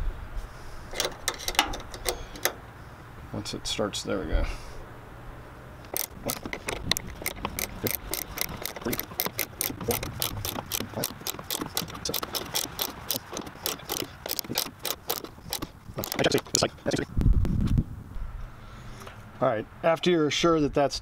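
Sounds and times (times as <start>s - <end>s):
ratcheting wrench clicking: 0.9s - 2.6s, 5.8s - 17.0s.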